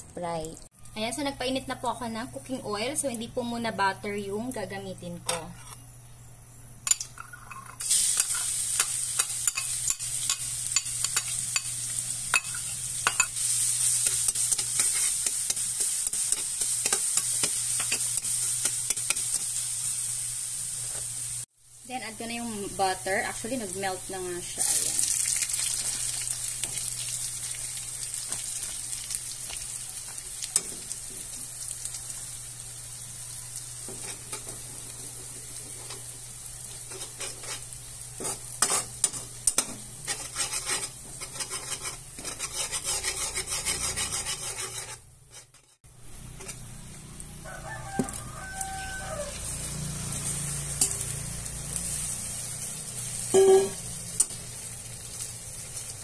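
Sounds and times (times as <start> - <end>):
spatula scraping a pan: 5.2 - 5.8, 12.4 - 19.6, 36.7 - 46.7
loud sizzle burst from shrimp: 7.8 - 39.5, 47.5 - 56.0
garlic and butter sizzling in a pan: 7.8 - 56.0.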